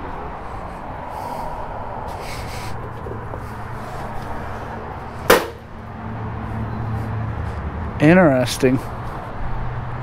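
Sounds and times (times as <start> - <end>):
sharp knock: 5.3 - 5.6.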